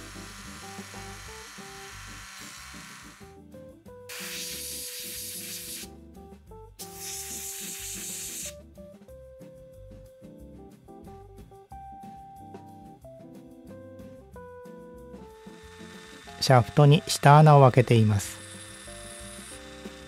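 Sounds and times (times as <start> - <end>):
rotary tool polishing: 0.0 - 3.3, 4.1 - 5.9, 6.9 - 8.5, 15.3 - 20.0
background music: 0.0 - 20.0
hissing bursts: 4.1 - 5.9, 6.8 - 8.6, 15.3 - 16.7.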